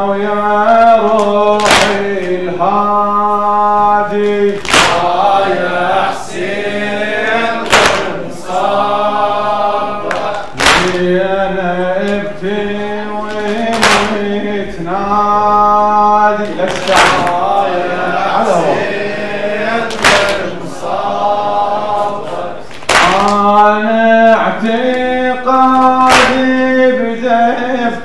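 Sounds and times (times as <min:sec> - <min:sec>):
men singing a mourning chant: 0:00.0 - 0:28.0
chest-beating slaps: 0:01.2 - 0:02.4, 0:04.2 - 0:05.3, 0:07.6 - 0:08.2, 0:10.0 - 0:11.1, 0:13.2 - 0:14.4, 0:16.4 - 0:17.6, 0:19.9 - 0:20.5, 0:22.3 - 0:23.4, 0:25.8 - 0:26.6.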